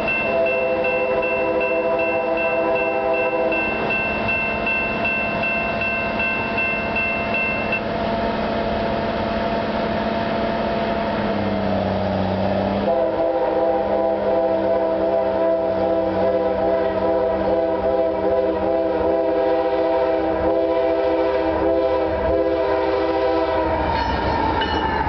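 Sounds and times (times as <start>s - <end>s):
train air horn chord: 0.0s - 3.9s, 12.8s - 24.4s
crossing bell ringing: 0.0s - 7.9s, 23.9s - 25.0s.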